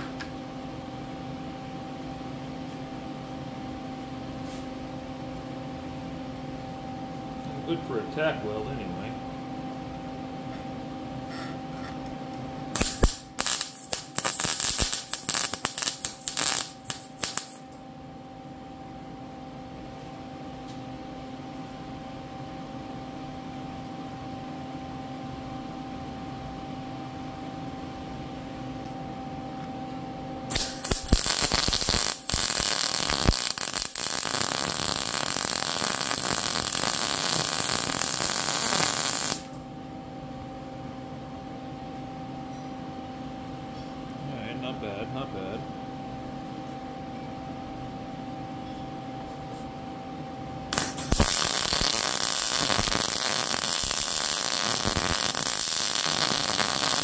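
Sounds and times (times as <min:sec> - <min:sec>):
steady hum: 0:00.0 - 0:57.0
welding arc crackling: 0:12.8 - 0:17.7, 0:30.5 - 0:39.6, 0:50.7 - 0:57.0.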